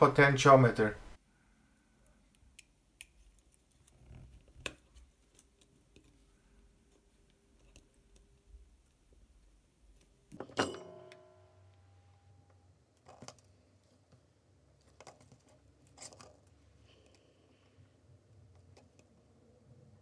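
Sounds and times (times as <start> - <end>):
metallic clatter with ring: 10.4 - 11.6
hands handling circuit board: 12.9 - 14.2.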